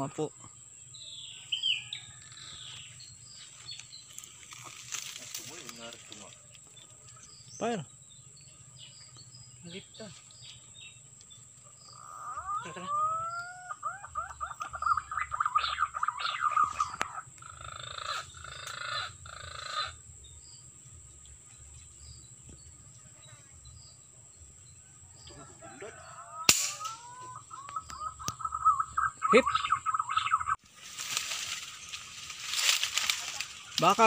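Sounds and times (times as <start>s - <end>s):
birds calling: 0.0s - 34.0s
rifle shot: 26.5s - 26.9s.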